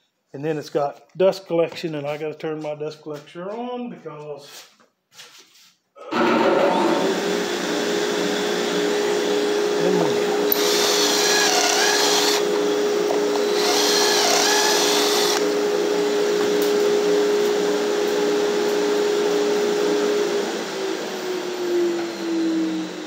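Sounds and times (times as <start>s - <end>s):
drill motor whine: 6.1s - 23.0s
dust collector humming: 6.2s - 23.0s.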